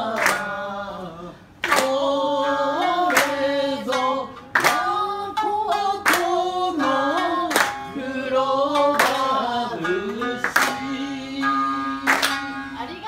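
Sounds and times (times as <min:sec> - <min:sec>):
group singing slow melody: 0:00.0 - 0:12.8
rhythmic hand clapping: 0:00.0 - 0:13.0.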